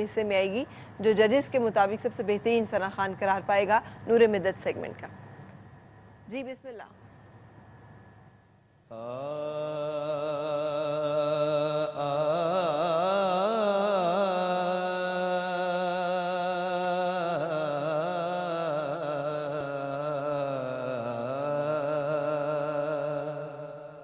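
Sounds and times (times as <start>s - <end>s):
man singing into a microphone: 8.9s - 24.0s.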